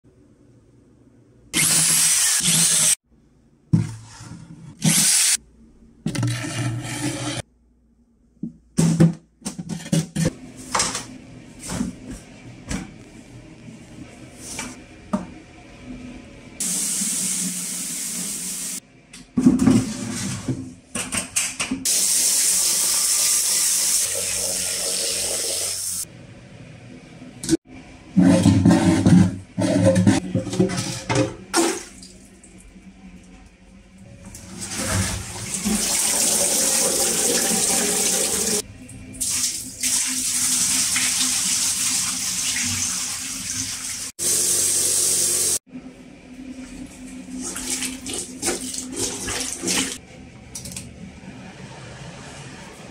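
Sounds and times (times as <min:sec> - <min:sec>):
water running into bucket: 0:34.3 - 0:38.6, 0:47.3 - 0:50.0.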